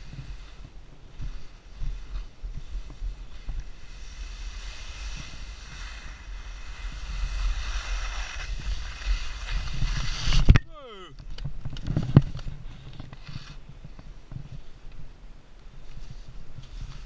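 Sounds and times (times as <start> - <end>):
skis hissing over snow: 0.0 - 10.5, 15.8 - 17.0.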